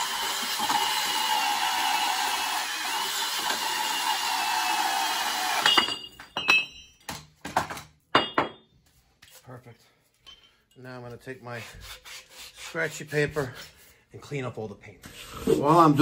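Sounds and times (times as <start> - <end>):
band saw cutting steel pipe: 0.0 - 6.0.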